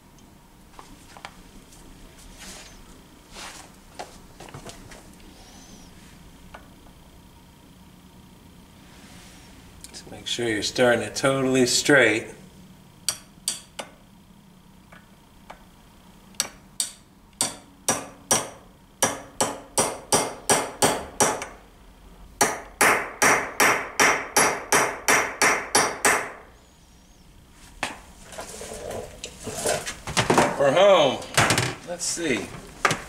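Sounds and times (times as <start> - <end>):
hammer tapping on metal: 13.1 - 13.9, 16.4 - 21.5.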